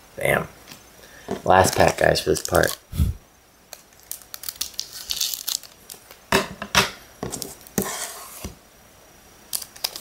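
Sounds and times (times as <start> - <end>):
foil wrapper crinkling: 1.4 - 2.9, 3.7 - 6.2, 9.5 - 10.0.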